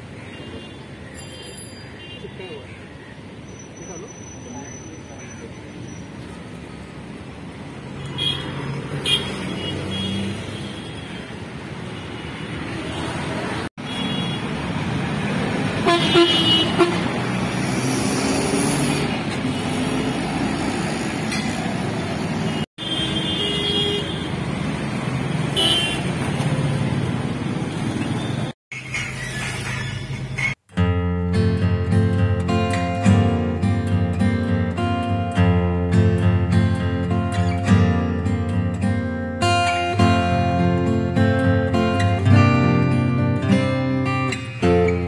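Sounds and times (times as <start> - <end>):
road traffic: 0.0 - 45.0
car horn toots: 15.8 - 17.1, 25.6 - 26.0.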